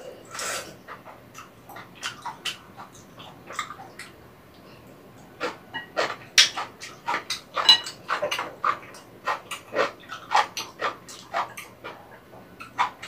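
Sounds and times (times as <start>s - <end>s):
person chewing and slurping: 0.0s - 13.0s.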